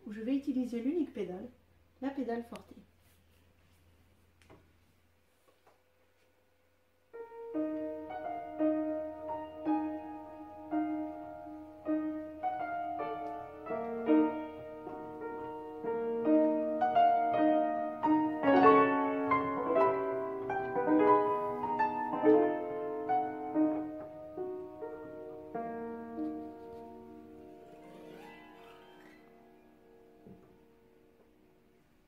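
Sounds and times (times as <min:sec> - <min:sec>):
fortepiano playing melody: 0:07.1 - 0:32.0.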